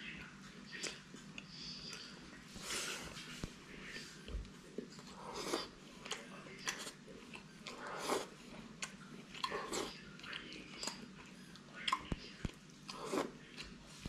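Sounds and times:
person slurping noodles: 0:05.1 - 0:05.8, 0:07.7 - 0:08.4, 0:12.9 - 0:13.4.

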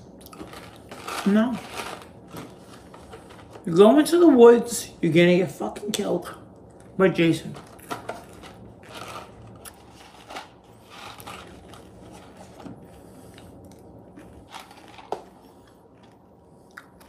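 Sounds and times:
low steady hum: 0:00.0 - 0:17.0
snack wrapper rustling: 0:00.2 - 0:03.7, 0:07.6 - 0:16.2.

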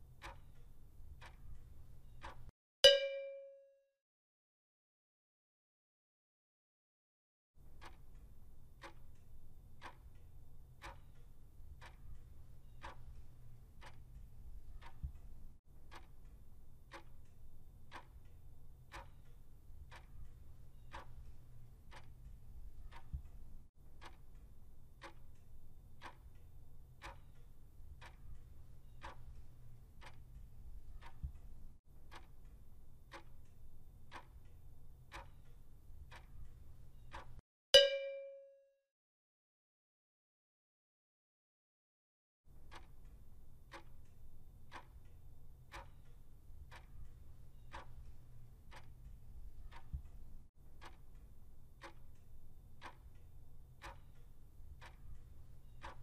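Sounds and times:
timer ticking: 0:00.1 - 0:03.6, 0:07.7 - 0:38.5, 0:42.5 - 0:56.0
loud ding: 0:02.9 - 0:03.8, 0:37.8 - 0:38.6.

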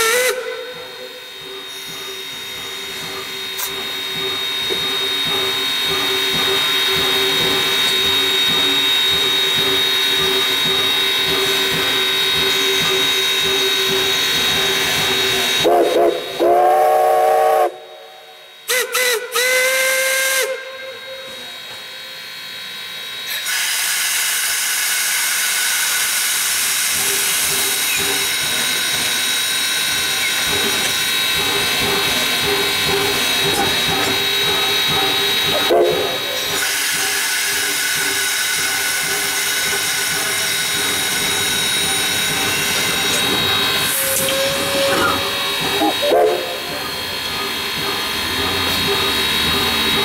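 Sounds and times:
steam whistle blasts: 0:00.0 - 0:04.6, 0:15.5 - 0:22.1, 0:23.3 - 0:28.0, 0:35.1 - 0:47.3
steam locomotive hissing: 0:00.0 - 0:50.0.

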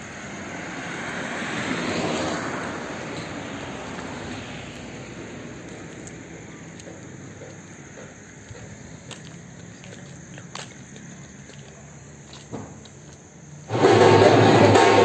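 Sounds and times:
footsteps on paved path: 0:03.0 - 0:14.9.

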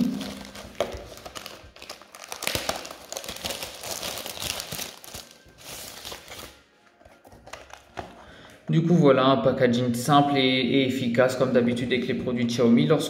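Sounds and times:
plastic film crinkling: 0:00.0 - 0:08.6.

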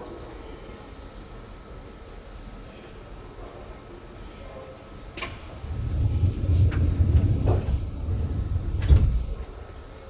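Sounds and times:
sliding train doors rumbling: 0:05.0 - 0:10.0
train door click: 0:06.6 - 0:09.6.

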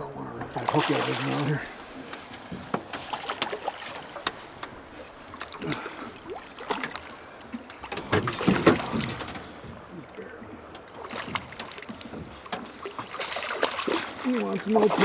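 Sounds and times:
water lapping and splashing: 0:00.0 - 0:15.0
fish thrashing at surface: 0:11.0 - 0:15.0.

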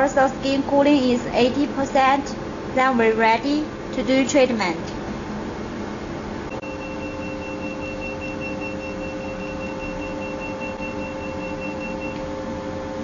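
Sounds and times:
machine humming: 0:00.0 - 0:13.0
rapid high beeps: 0:06.5 - 0:12.2.

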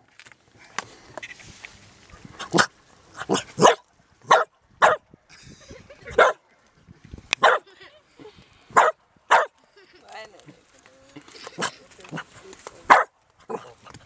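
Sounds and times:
dog barking: 0:02.6 - 0:05.0, 0:06.2 - 0:06.4, 0:07.4 - 0:07.6, 0:08.7 - 0:09.5, 0:12.9 - 0:13.7.

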